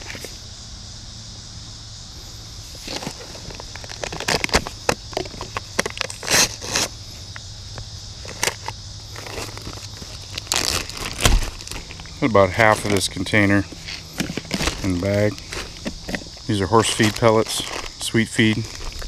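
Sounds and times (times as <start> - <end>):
plastic bag crinkling: 2.8 - 6.9, 8.2 - 19.0.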